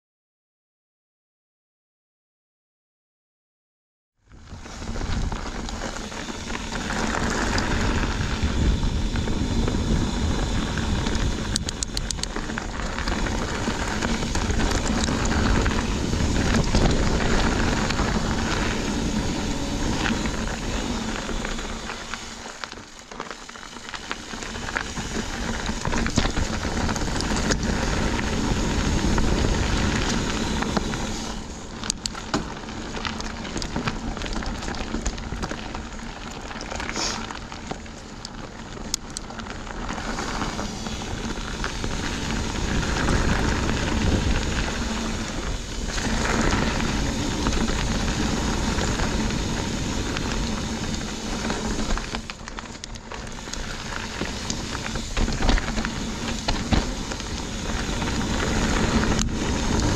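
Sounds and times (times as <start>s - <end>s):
wind rushing over microphone: 4.3s - 22.6s, 24.0s - 32.0s, 39.4s - 59.9s
bike clicks and rattles: 4.3s - 59.9s
tyres crackling over dirt: 4.4s - 59.9s.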